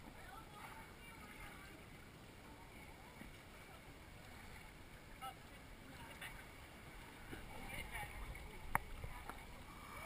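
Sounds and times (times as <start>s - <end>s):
water sloshing and flowing: 0.0s - 10.0s.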